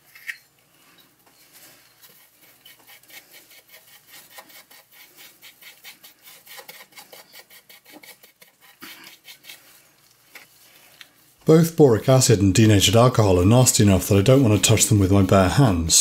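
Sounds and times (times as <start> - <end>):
spoon scraping paste on wire wool: 1.4 - 10.5, 12.6 - 16.0.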